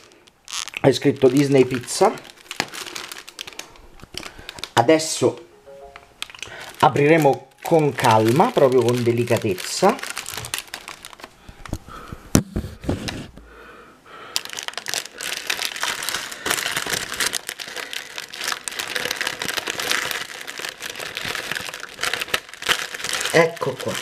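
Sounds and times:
plastic wrapping crinkling: 0:00.0 - 0:12.2, 0:14.3 - 0:24.0.

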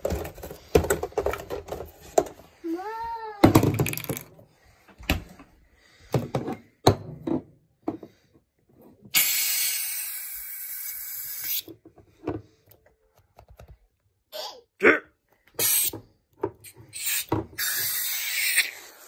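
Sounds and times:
aerosol whipped cream can hissing: 0:09.1 - 0:11.7, 0:15.6 - 0:15.9, 0:16.9 - 0:19.0.

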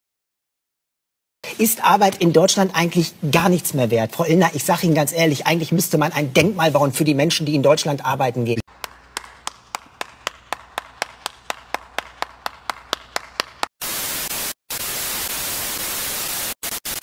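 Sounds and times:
person clapping slowly: 0:08.7 - 0:13.7
tv static hiss: 0:13.8 - 0:17.0.

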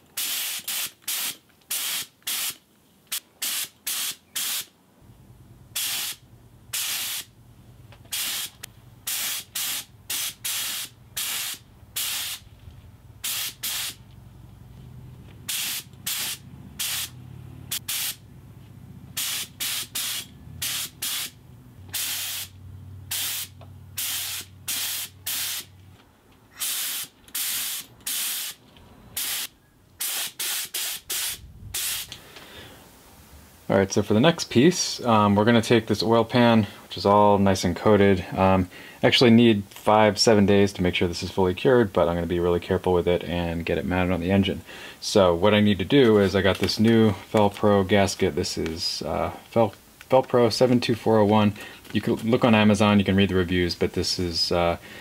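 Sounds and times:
spray gun hissing bursts: 0:00.0 - 0:04.7, 0:05.7 - 0:07.3, 0:08.1 - 0:12.5, 0:13.2 - 0:14.0, 0:15.4 - 0:18.2, 0:19.1 - 0:25.8, 0:26.5 - 0:32.2
low steady hum: 0:04.8 - 0:09.1, 0:10.9 - 0:19.2.

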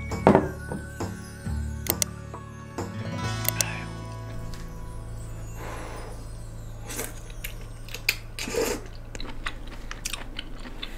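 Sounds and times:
steady low hum: 0:03.2 - 0:10.9.

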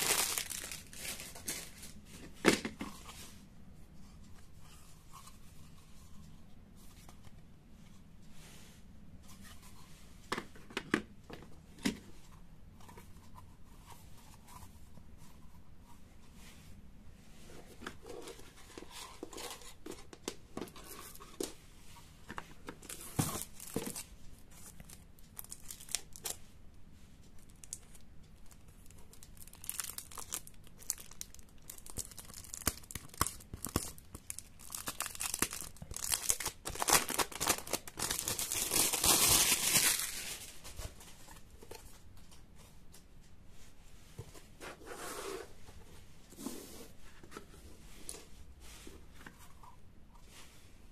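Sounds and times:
plastic packaging crinkling and tearing: 0:00.0 - 0:02.0, 0:24.8 - 0:26.4, 0:28.9 - 0:40.7.

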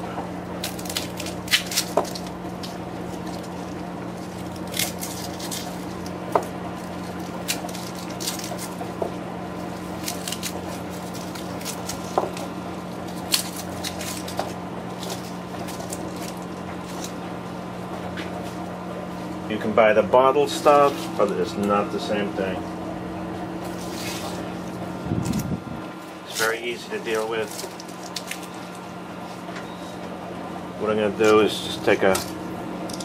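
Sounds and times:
low hum: 0:00.0 - 0:33.0
garlic papery crackles: 0:00.5 - 0:17.4, 0:20.4 - 0:21.8, 0:23.6 - 0:29.6, 0:31.0 - 0:32.5.

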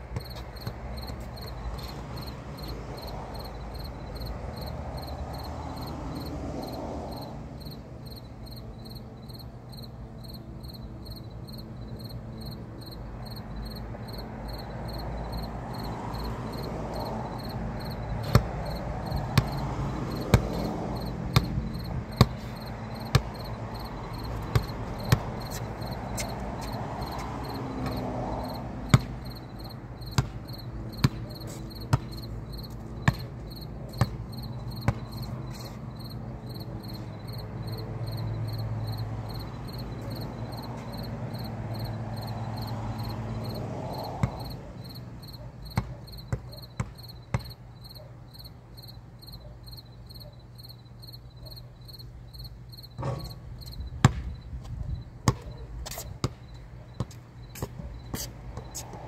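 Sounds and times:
basketball bouncing on concrete: 0:00.1 - 0:03.5, 0:15.6 - 0:36.2, 0:38.1 - 0:44.6, 0:45.3 - 0:47.6, 0:53.0 - 0:59.0
insect chirping: 0:00.2 - 0:01.6, 0:02.2 - 0:05.9, 0:06.6 - 0:30.7, 0:35.9 - 0:43.6, 0:47.8 - 0:51.2, 0:51.8 - 0:53.9.

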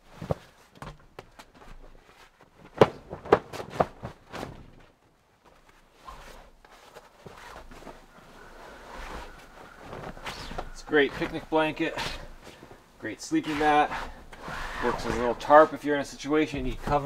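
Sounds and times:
cloth rustling: 0:00.0 - 0:17.0
canvas mat snapping: 0:02.6 - 0:12.3.

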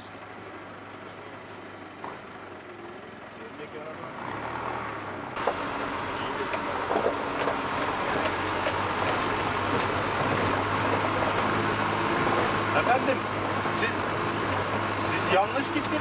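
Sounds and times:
vehicle engine hum: 0:00.0 - 0:16.0
tyres on gravel: 0:05.3 - 0:16.0.

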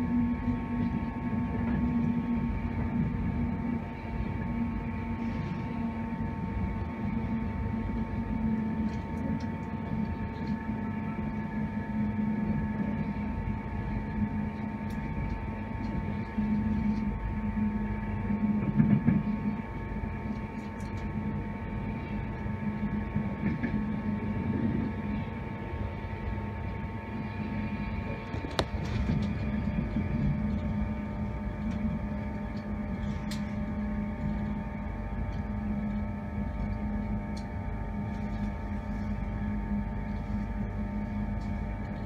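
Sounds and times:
electrical hum: 0:00.0 - 0:42.0
train wheels rumbling on track: 0:18.3 - 0:20.0, 0:22.8 - 0:25.3.

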